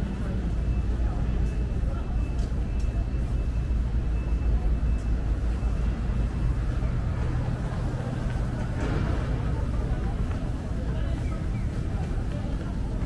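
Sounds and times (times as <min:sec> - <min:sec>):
engine hum: 0:00.0 - 0:13.0
road traffic rumble: 0:00.0 - 0:13.0.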